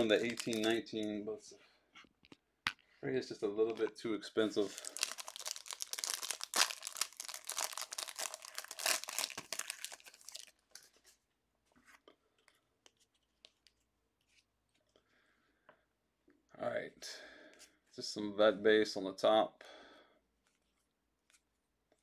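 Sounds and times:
cards clicking and rustling: 0.0 - 0.8
cellophane wrapper tearing and crinkling: 0.0 - 0.8, 4.6 - 10.9.

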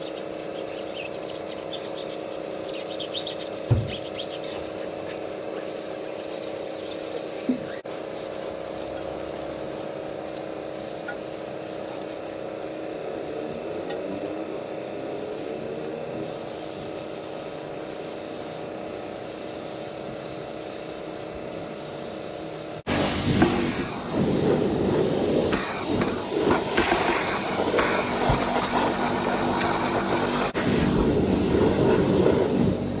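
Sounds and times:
brush scrubbing a wheel: 0.0 - 7.8
pressure washer spraying: 0.0 - 8.4, 16.3 - 33.0
steady hum: 0.0 - 33.0.

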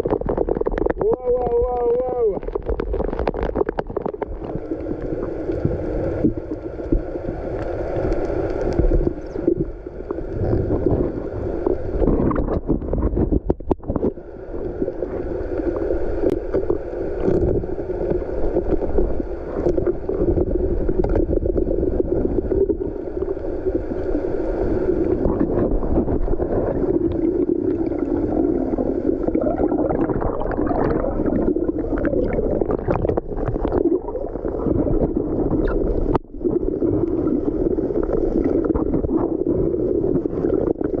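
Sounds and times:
underwater rush of water: 0.0 - 41.0.

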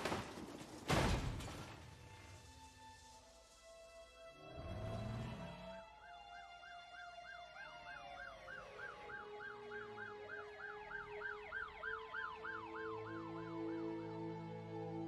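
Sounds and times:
siren rising and falling wail: 4.4 - 15.0
siren fast yelp: 5.9 - 13.9.

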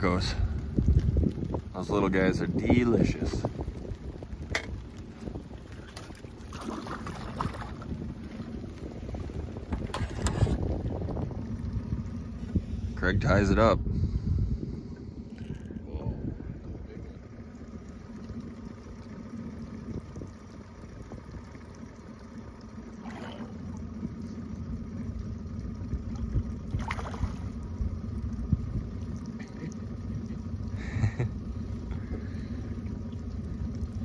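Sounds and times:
steady low rumble: 0.0 - 34.0
fish splashing at surface: 5.8 - 7.9, 26.7 - 27.6.

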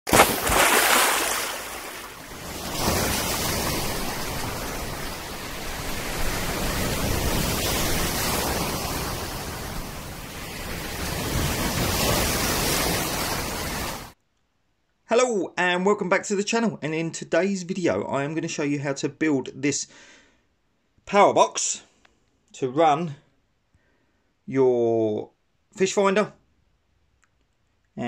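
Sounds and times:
sea surf breaking: 0.1 - 14.2.

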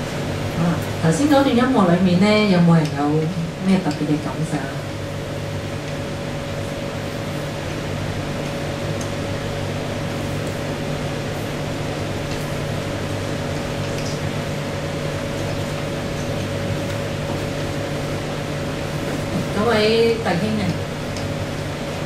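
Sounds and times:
constant low hum: 0.0 - 22.0.

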